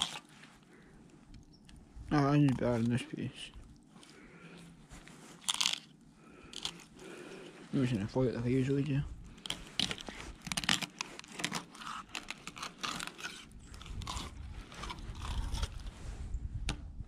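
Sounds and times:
knife cutting and scraping fish: 0.0s - 0.6s, 9.3s - 16.0s.

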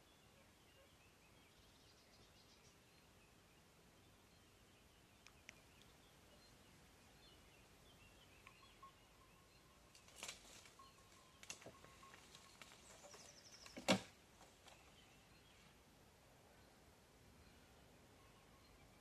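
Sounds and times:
dry reeds and twigs crackling: 9.8s - 15.1s.

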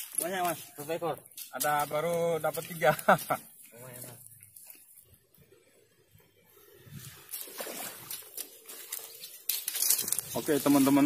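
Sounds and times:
reed grass rustling: 0.0s - 5.8s, 6.5s - 11.0s
shallow water sloshing: 6.6s - 10.3s.

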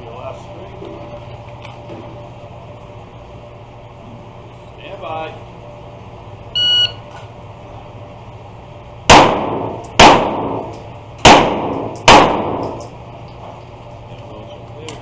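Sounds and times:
shot timer beep: 6.6s - 7.0s
pistol shots echoing: 9.1s - 12.8s.

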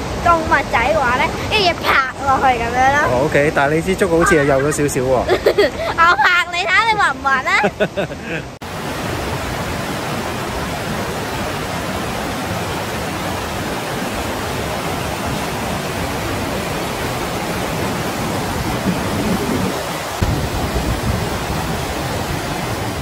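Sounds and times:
river rapids rushing over rocks: 8.6s - 23.0s.

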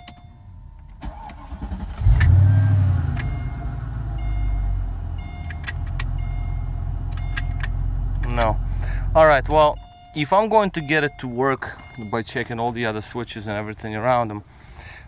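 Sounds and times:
car motor humming: 1.1s - 9.8s
roof switch clicking: 7.1s - 8.6s
short chimes: 9.2s - 13.4s.

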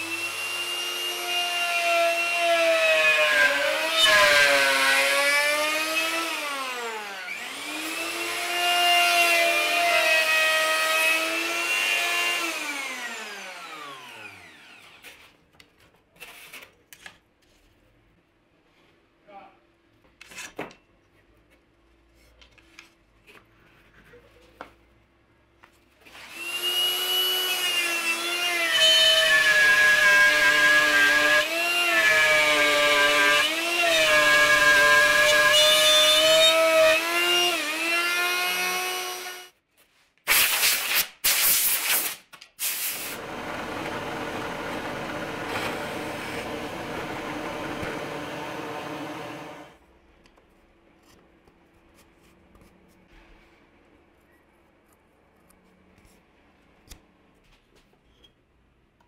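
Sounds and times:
router whining: 0.0s - 15.2s, 26.1s - 39.5s, 42.9s - 49.8s
drill press drilling wood: 42.7s - 49.8s.

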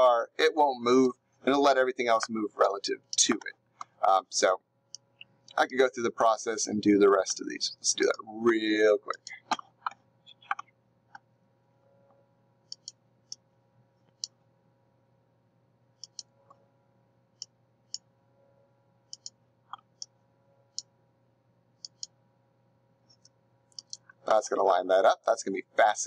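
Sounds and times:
faint electrical hum: 0.0s - 26.0s
computer mouse clicking: 12.7s - 13.4s, 16.0s - 16.3s, 19.1s - 20.1s, 21.8s - 22.2s, 23.1s - 24.3s.

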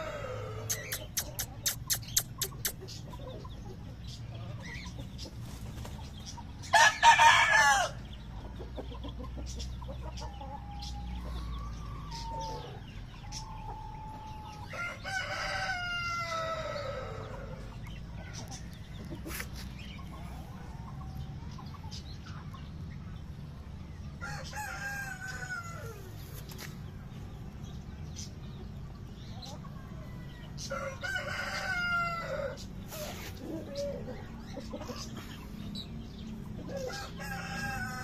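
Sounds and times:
chicken calling: 0.0s - 2.9s
hens clucking softly: 0.0s - 6.5s, 29.4s - 35.6s
rooster crowing: 6.7s - 8.0s, 14.7s - 17.6s, 30.7s - 32.6s.

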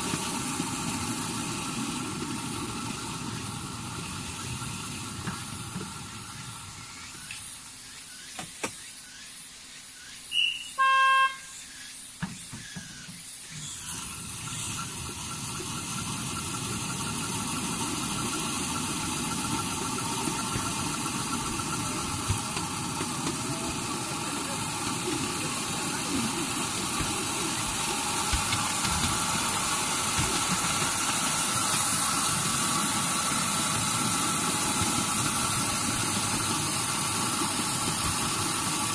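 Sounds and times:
train wheels whining on rails: 0.0s - 38.9s
miniature train horn beep: 10.3s - 11.6s.

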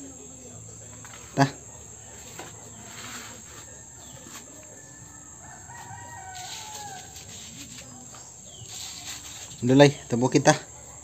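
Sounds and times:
insect buzz: 0.0s - 11.0s
rooster crowing: 1.8s - 7.9s.

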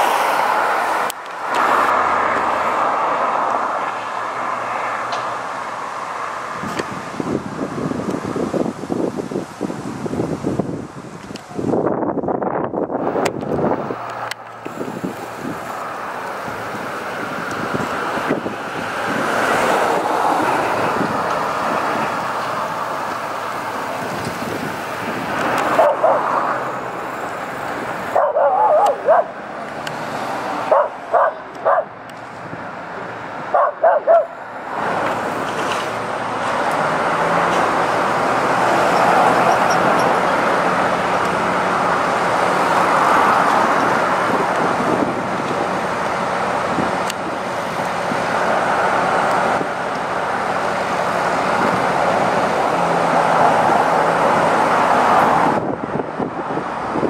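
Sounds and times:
truck engine running: 12.9s - 30.0s
dog barking: 25.8s - 26.3s, 28.1s - 29.4s, 30.7s - 31.9s, 33.5s - 34.4s.

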